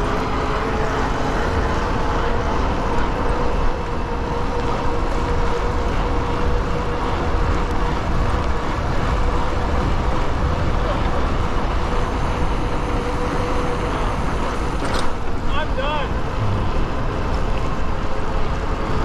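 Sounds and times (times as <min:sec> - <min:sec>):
wind rushing: 0:16.1 - 0:18.0.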